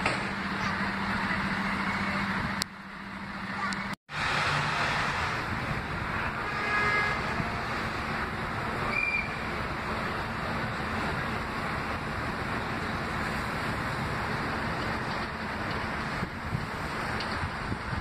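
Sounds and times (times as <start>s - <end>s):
subway train rumble: 0.0s - 18.0s
wind noise: 14.5s - 18.0s.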